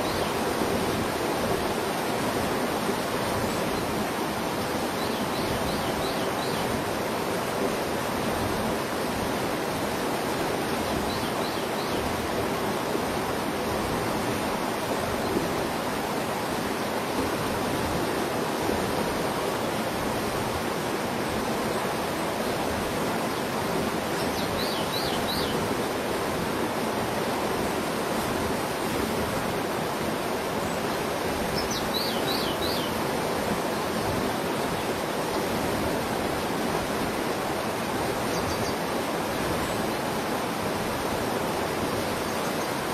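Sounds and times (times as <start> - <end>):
flowing river water: 0.0 - 42.9
small bird chirping: 31.6 - 32.9.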